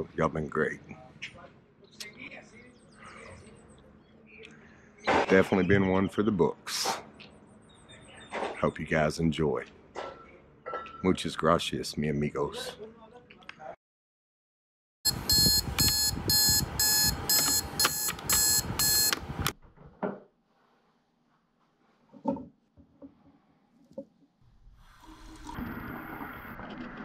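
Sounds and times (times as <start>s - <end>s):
alarm clock ringing: 15.1s - 19.2s
tap running: 15.3s - 19.2s.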